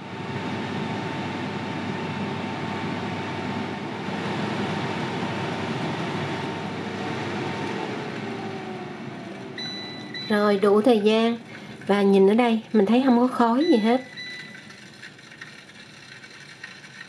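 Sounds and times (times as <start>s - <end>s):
air fryer fan whirring hum: 0.0s - 17.0s
short beep: 9.6s - 10.4s, 13.6s - 14.6s.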